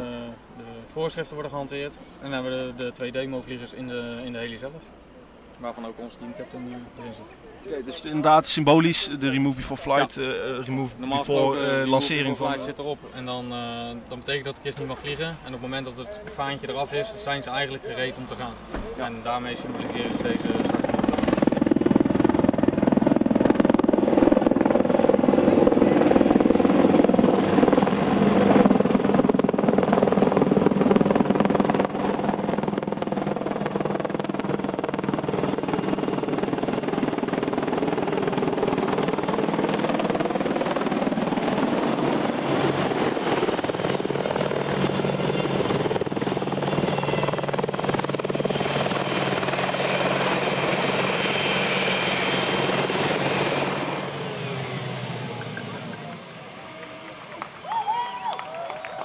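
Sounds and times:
helicopter rotor beat: 7.9 - 58.3
turbine engine whine: 16.4 - 59.0.

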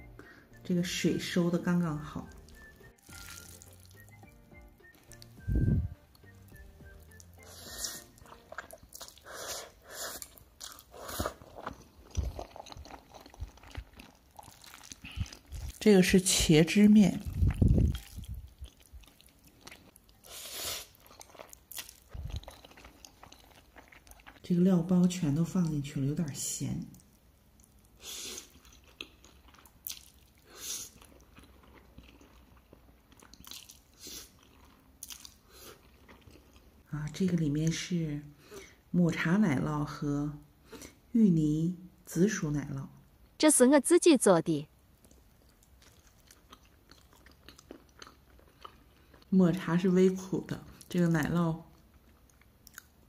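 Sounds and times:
person chewing noodles: 2.3 - 15.8, 17.2 - 24.4, 27.1 - 36.9, 45.0 - 49.3, 51.7 - 53.0
person slurping noodles: 7.4 - 13.8, 20.2 - 21.0.

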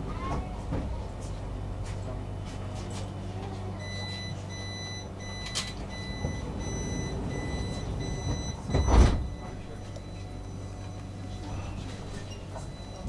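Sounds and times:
train low hum: 0.0 - 13.0
high door warning beep: 3.8 - 13.0
sliding doors thumping shut: 5.5 - 9.6.

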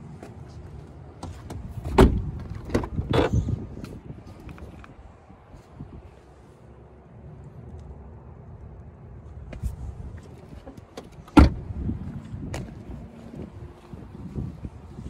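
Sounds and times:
car door slamming: 1.6 - 3.4, 11.0 - 11.6.

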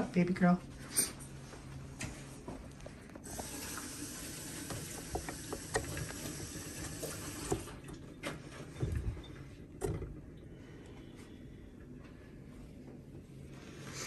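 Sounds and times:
mixer beater clicks and taps: 4.7 - 6.4.

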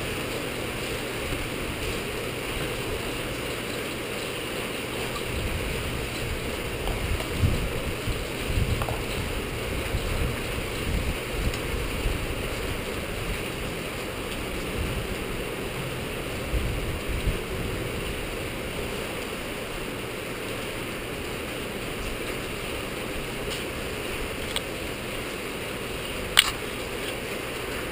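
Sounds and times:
rain hissing: 0.0 - 27.9
wind buffeting microphone: 5.1 - 19.0.

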